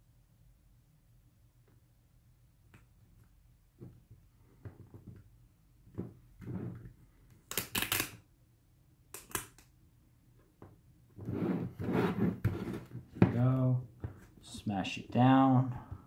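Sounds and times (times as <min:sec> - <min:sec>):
decal rubbing and crackling: 0:11.2 - 0:14.4.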